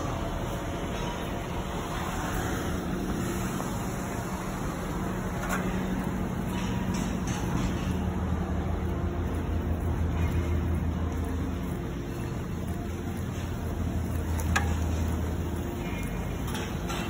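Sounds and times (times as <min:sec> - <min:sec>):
city street traffic: 0:00.0 - 0:17.0.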